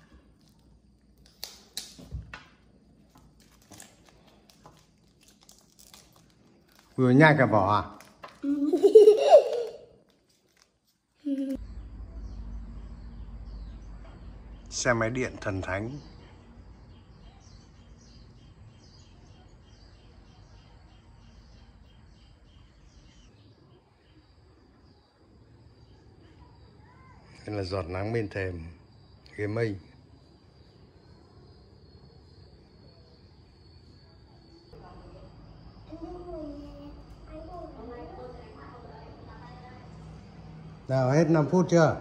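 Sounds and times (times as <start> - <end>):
plastic wrappers crinkling: 3.0 - 7.3, 7.9 - 8.8, 9.4 - 11.6.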